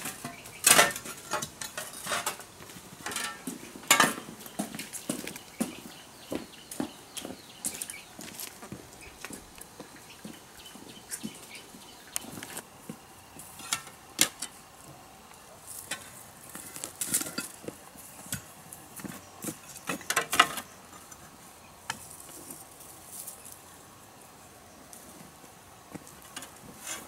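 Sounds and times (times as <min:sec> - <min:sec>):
hand tool scraping into soil: 0:00.0 - 0:04.3, 0:26.0 - 0:27.0.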